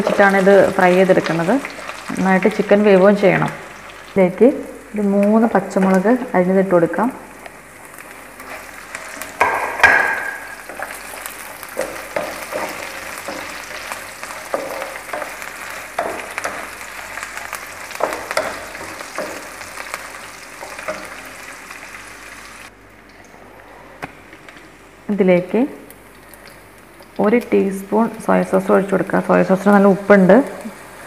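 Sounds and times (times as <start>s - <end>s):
chicken sizzling in oil: 0.0s - 5.6s, 7.5s - 22.7s.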